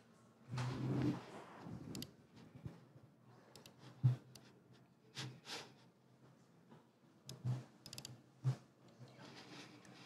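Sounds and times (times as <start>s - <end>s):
laptop keys and trackpad tapping: 7.3s - 8.2s.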